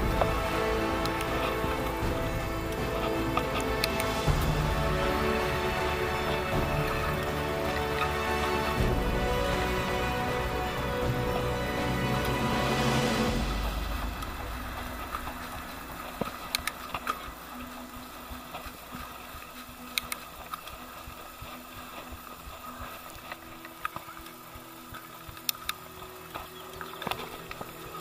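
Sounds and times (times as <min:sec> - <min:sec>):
bike tyre and drivetrain noise: 0:13.0 - 0:28.0.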